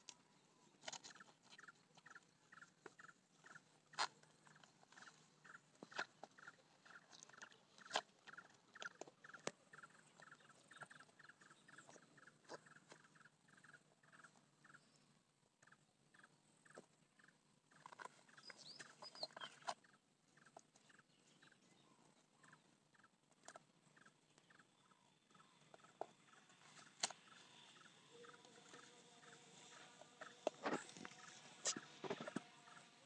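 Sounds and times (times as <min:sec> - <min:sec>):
animal chirping: 0:00.8 - 0:14.9, 0:15.6 - 0:33.0.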